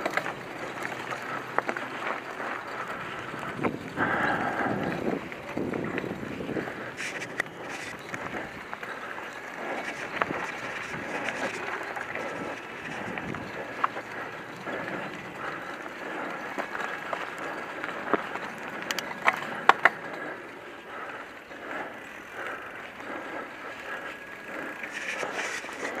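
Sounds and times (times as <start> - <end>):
bike clicks and rattles: 0.0 - 26.0
bike tyres rolling on dirt: 0.0 - 26.0.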